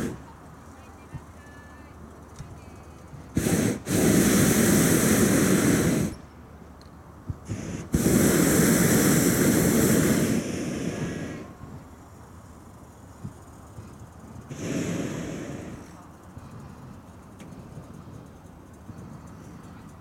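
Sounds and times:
propane burner firing: 0.0 - 0.4, 3.2 - 6.2, 7.3 - 12.0, 13.1 - 20.0.

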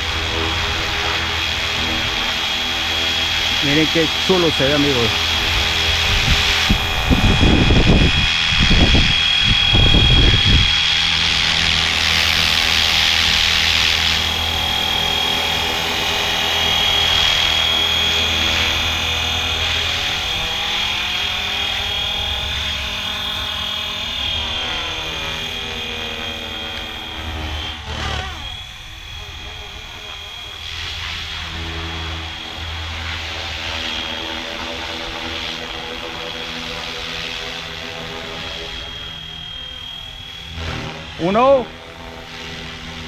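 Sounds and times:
low rumbling: 0.0 - 33.4
rc helicopter rotor whine: 0.0 - 43.0.

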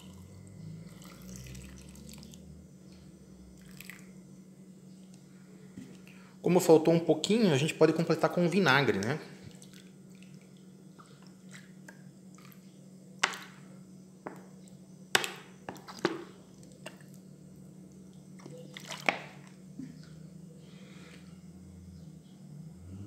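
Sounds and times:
vinegar pouring into jars: 0.0 - 2.4, 3.6 - 4.1.

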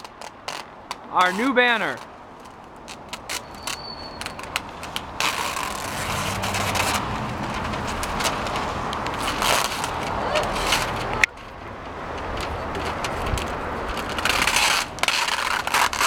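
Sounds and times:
paper sheet crinkling: 0.0 - 11.1
vehicle engine running: 4.6 - 12.0.

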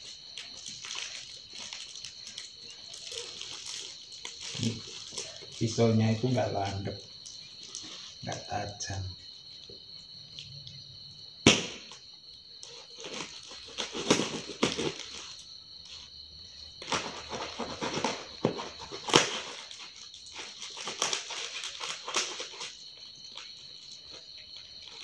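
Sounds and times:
paper rustling: 0.0 - 8.4, 12.6 - 16.1, 16.8 - 25.0
knife sawing through cardboard: 16.8 - 19.6.

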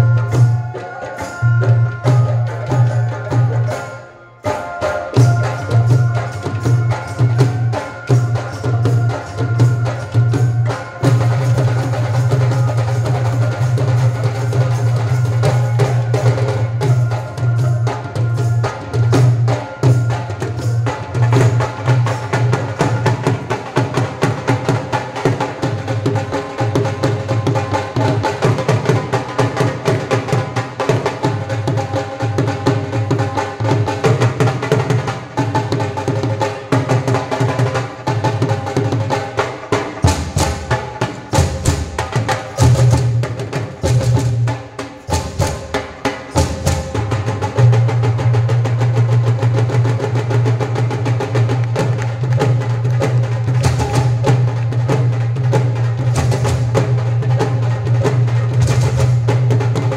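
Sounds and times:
wind instrument melody: 0.0 - 24.2
drums playing: 4.5 - 59.9.

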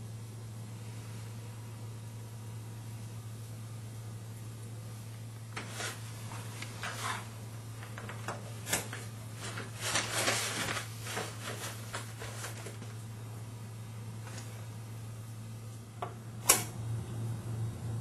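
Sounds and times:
low hum: 12.5 - 18.0.

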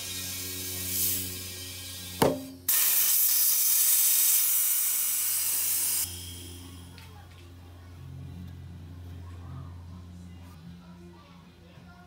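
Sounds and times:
tire bead popping onto rim: 2.1 - 2.8.

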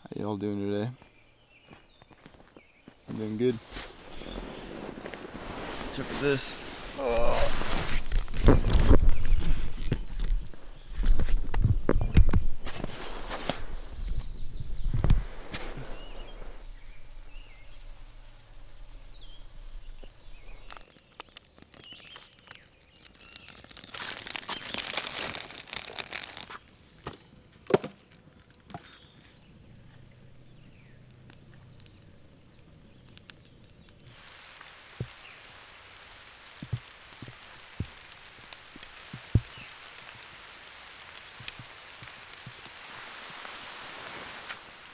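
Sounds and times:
loud hiss: 3.4 - 21.0, 34.1 - 44.9
light rain patter on water: 17.8 - 26.6, 29.9 - 44.9
firewood knocking: 36.6 - 38.0, 38.8 - 40.2.

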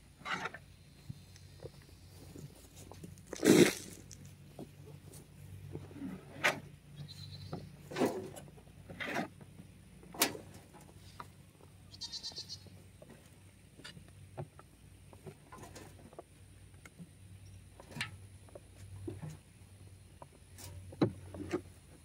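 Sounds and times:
shovels scraping mulch: 2.5 - 4.3, 7.8 - 9.4.

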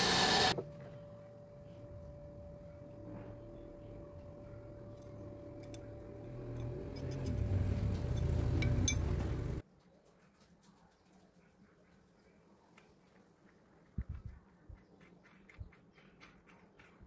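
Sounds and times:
steady hum: 0.0 - 9.6
metallic clink of steel parts: 4.9 - 9.4.

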